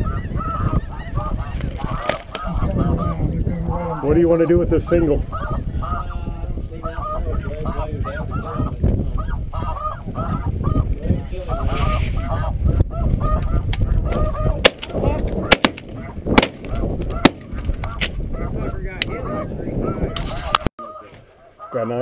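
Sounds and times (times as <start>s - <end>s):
geese honking: 0.0s - 22.0s
sharp cracks: 14.6s - 18.2s.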